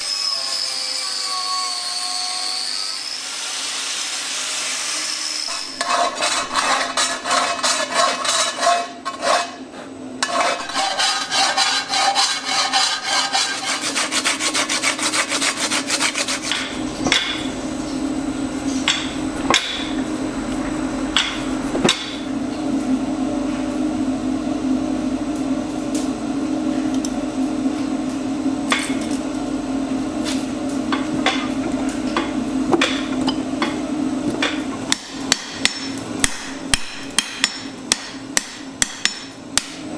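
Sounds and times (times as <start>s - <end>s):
metal scraping and rasping: 5.3s - 18.0s
low machine hum: 5.5s - 39.9s.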